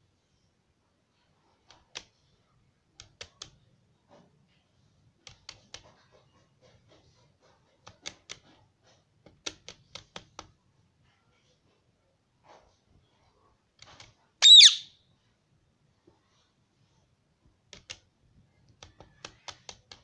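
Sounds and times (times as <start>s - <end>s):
calculator keys clicking: 18.7s - 20.0s.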